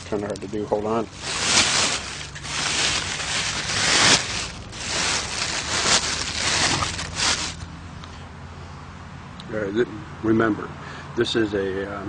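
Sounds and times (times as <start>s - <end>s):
plastic bag rustling: 1.0s - 7.7s.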